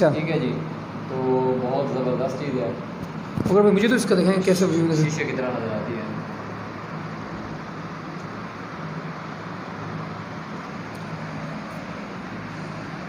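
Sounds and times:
low constant hum: 0.0 - 13.0.

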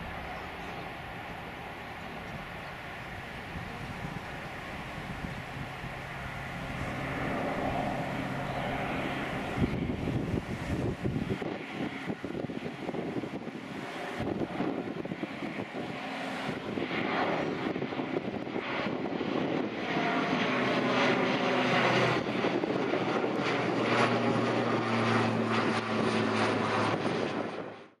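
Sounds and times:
turboprop airplane flying overhead: 0.0 - 28.0.

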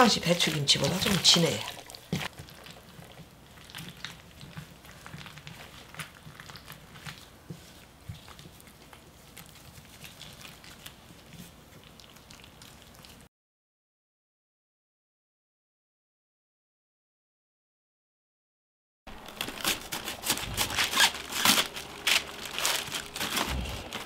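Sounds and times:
wet squelches and crackles: 0.0 - 13.3, 19.1 - 24.0.

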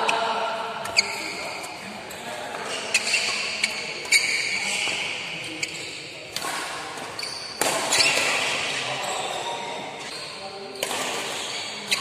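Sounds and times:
shoes squeaking on court floor: 0.8 - 1.9, 2.5 - 12.0
rackets striking shuttlecock: 6.3 - 8.8, 10.8 - 12.0.

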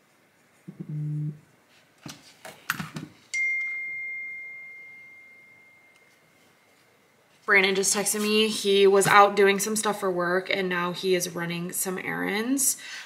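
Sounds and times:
bell-like chime: 3.3 - 6.8.

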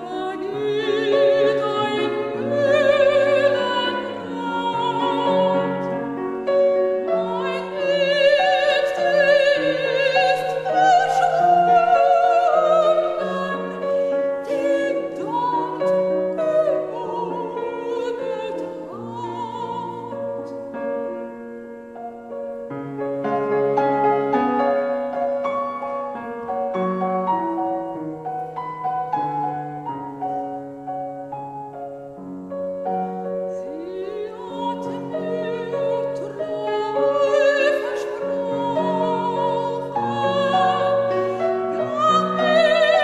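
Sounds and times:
operatic singing with vibrato: 0.0 - 20.7, 32.8 - 43.0
piano accompaniment: 0.0 - 43.0.

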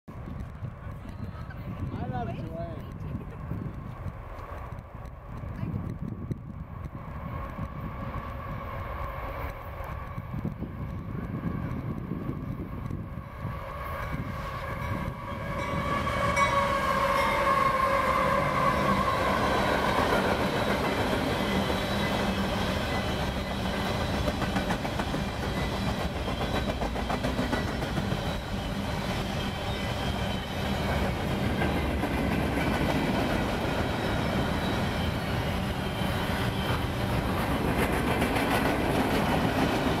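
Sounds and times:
train cars rumbling and clattering: 0.1 - 40.0
locomotive pitched tone: 13.2 - 32.4, 33.6 - 37.7.

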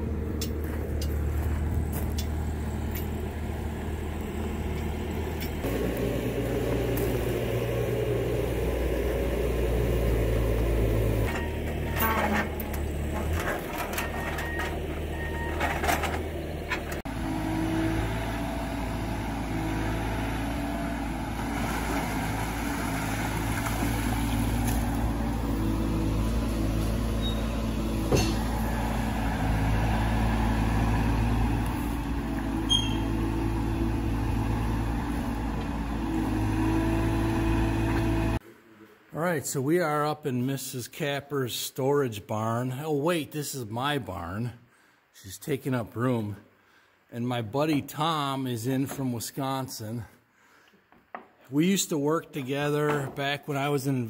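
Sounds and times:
diesel engines running: 0.0 - 38.4.

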